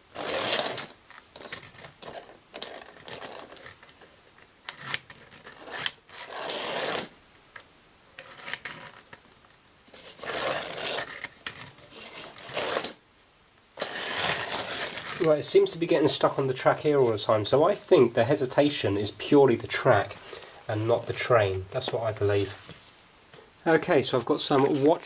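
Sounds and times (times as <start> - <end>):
toy train motor whirring: 0.1 - 7.1, 10.0 - 13.0, 13.8 - 15.3.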